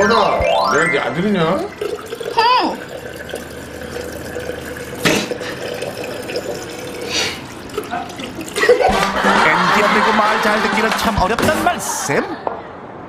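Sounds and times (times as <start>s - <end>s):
tap water running into basin: 1.4s - 11.6s.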